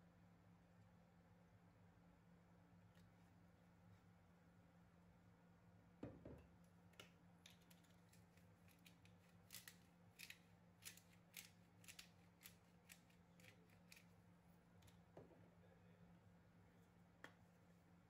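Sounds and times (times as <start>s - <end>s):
pepper grinder clicking: 7.5s - 14.1s.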